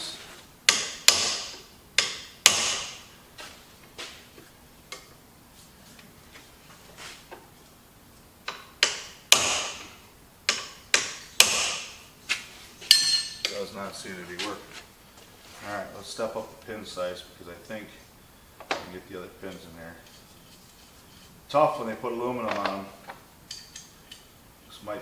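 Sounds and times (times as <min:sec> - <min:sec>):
hammer striking metal wrench: 0:12.9 - 0:13.6.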